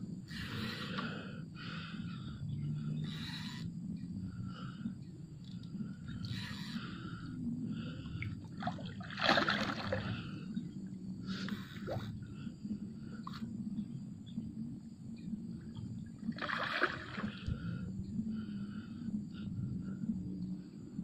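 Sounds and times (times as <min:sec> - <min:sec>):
low rumble: 0:00.0 - 0:21.0
fish thrashing in water: 0:08.5 - 0:10.2, 0:16.4 - 0:17.4.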